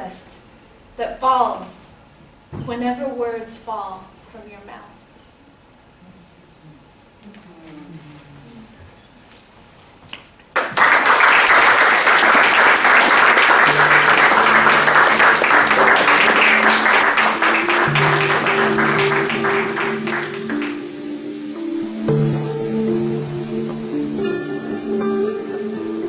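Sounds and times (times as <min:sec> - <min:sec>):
audience applause: 0:10.5 - 0:20.9
soft music with low held notes: 0:13.3 - 0:26.0.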